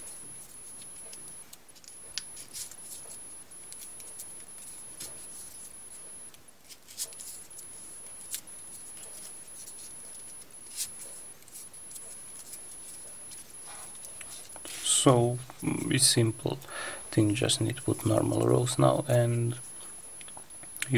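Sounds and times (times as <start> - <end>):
paper rustling: 6.6 - 14.9.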